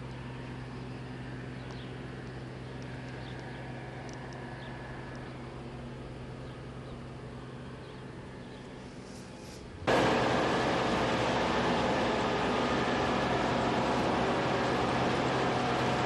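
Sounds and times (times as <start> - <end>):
combine harvester droning: 0.0 - 16.0
faint high ticks: 2.8 - 5.3.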